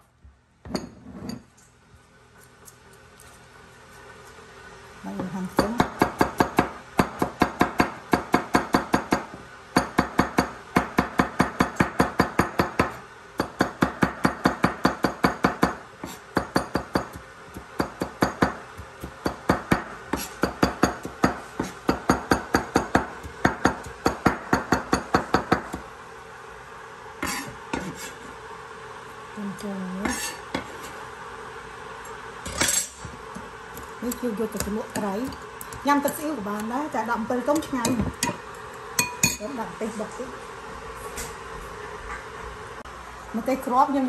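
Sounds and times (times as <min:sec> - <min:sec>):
knife clinking on bowl: 0:39.0 - 0:39.4.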